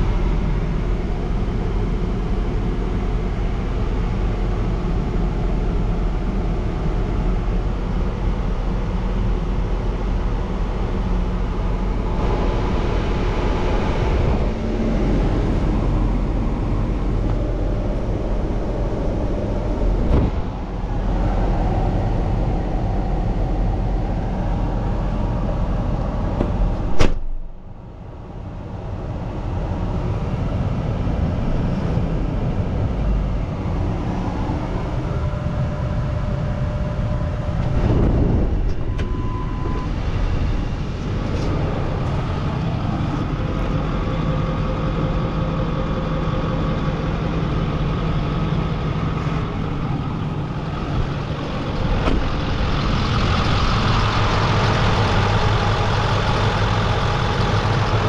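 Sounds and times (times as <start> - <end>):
diesel engine idling: 0.0 - 58.0
sharp knock: 27.0 - 27.4.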